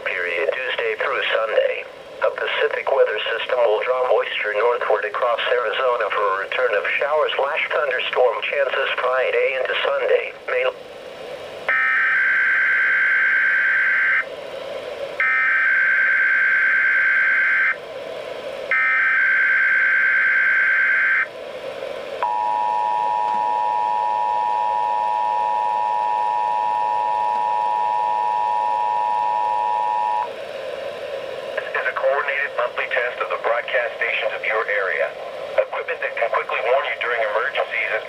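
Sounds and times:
two-tone attention signal: 0:22.2 - 0:30.3.

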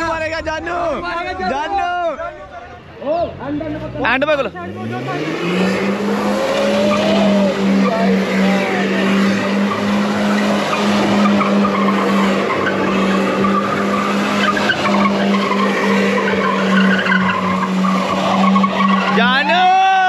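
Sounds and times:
car engine droning: 0:00.0 - 0:20.0
tyres squealing and skidding: 0:00.0 - 0:20.0.

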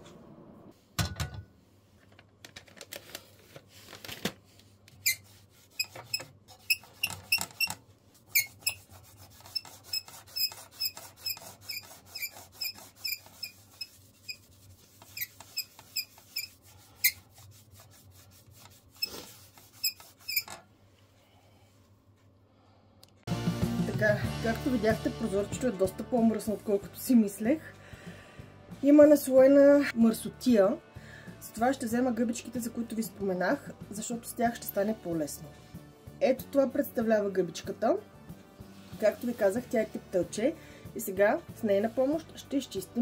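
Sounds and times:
wet wipe squeaking on glass: 0:05.0 - 0:17.2, 0:19.8 - 0:20.6.

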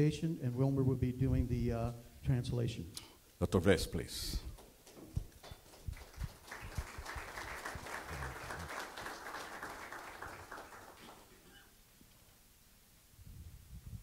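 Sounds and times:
audience applauding: 0:05.6 - 0:11.6.

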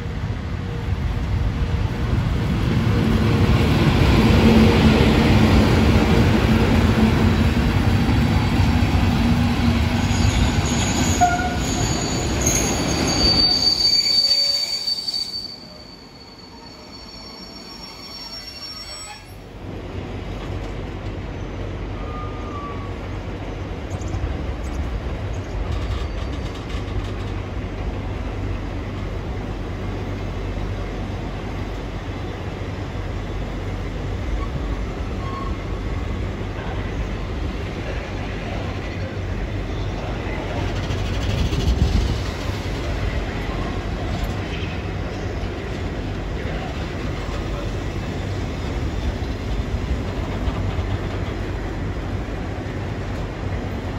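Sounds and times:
train wheels rumbling: 0:00.0 - 0:53.9
high-pitched wheel squeal: 0:10.1 - 0:19.4.

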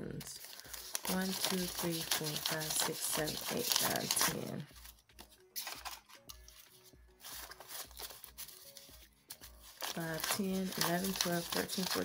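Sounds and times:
faint background music with beat: 0:00.0 - 0:12.0
banknotes rustling and crinkling: 0:00.2 - 0:12.0.

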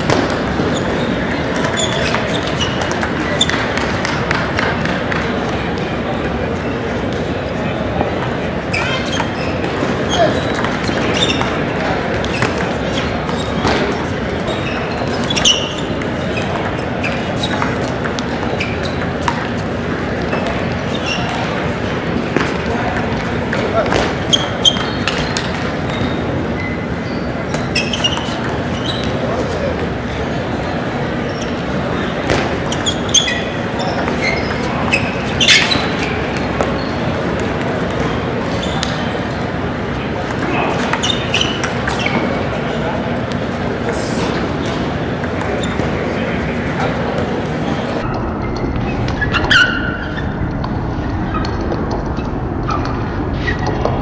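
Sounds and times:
table tennis balls clicking: 0:00.0 - 0:07.3, 0:07.9 - 0:39.5, 0:40.1 - 0:42.5
hubbub of a large hall: 0:00.0 - 0:54.0
shoes squeaking on floor: 0:00.0 - 0:54.0.

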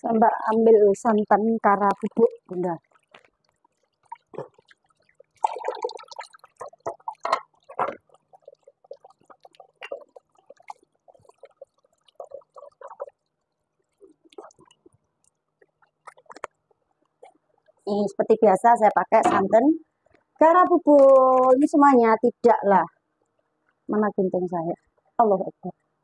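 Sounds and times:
water splashing in a sink: 0:00.3 - 0:16.8.

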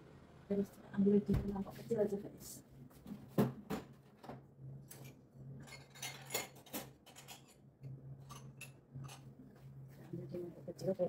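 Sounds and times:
spoon and dishes clinking: 0:04.9 - 0:09.3.

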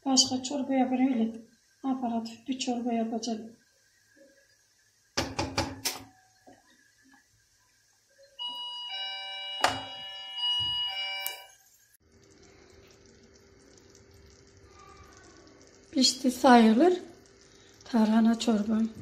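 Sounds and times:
metal spoon knocking on pot: 0:05.2 - 0:06.0.

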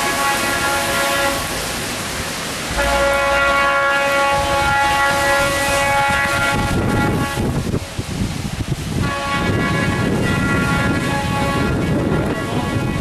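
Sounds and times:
locomotive air horn blast: 0:00.0 - 0:01.6, 0:02.7 - 0:07.7, 0:09.0 - 0:13.0
low rumbling: 0:02.6 - 0:13.0.

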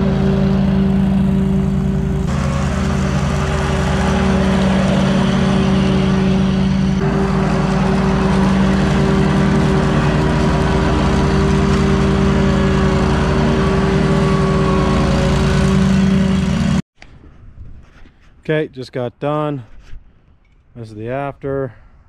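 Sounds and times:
grass catcher rushing noise: 0:00.0 - 0:16.8
riding mower engine hum: 0:00.0 - 0:16.8.

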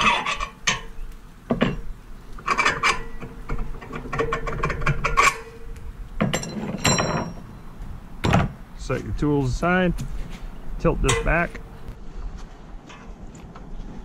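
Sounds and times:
metal bolts scraping metal: 0:00.0 - 0:07.6, 0:11.0 - 0:11.7.

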